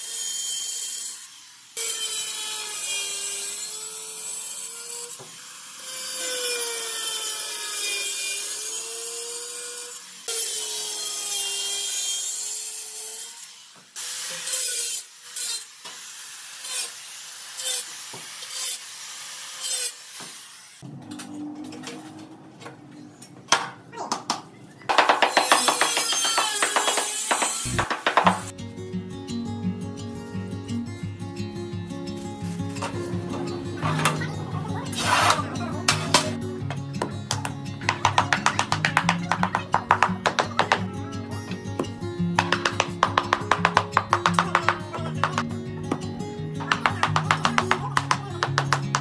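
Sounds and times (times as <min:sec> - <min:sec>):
electric tile cutter cutting tile: 0:00.0 - 0:22.0, 0:24.9 - 0:28.5, 0:32.8 - 0:36.4, 0:37.3 - 0:40.9, 0:42.4 - 0:45.5, 0:46.6 - 0:49.0.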